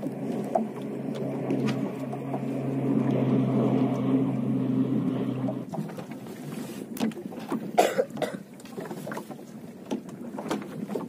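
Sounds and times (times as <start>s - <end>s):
water slapping against boat hull: 0.0s - 11.0s
person coughing: 7.8s - 8.4s.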